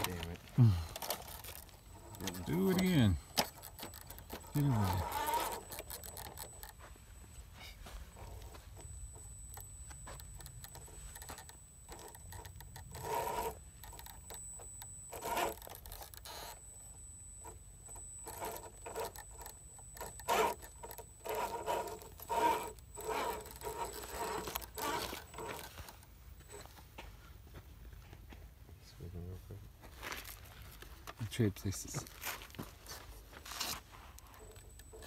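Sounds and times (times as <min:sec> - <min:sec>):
toy car electric motor whining: 0:00.0 - 0:06.8, 0:08.1 - 0:26.7, 0:33.4 - 0:35.0
tyres scraping on rock: 0:00.0 - 0:06.8, 0:10.2 - 0:16.3, 0:18.2 - 0:26.7.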